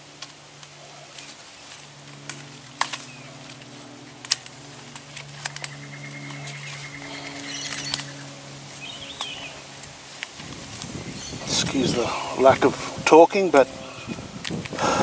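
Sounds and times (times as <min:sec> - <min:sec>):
steady low hum: 0:00.0 - 0:15.0
wire twisting clicks: 0:02.0 - 0:08.3
high trilling call: 0:05.6 - 0:09.7.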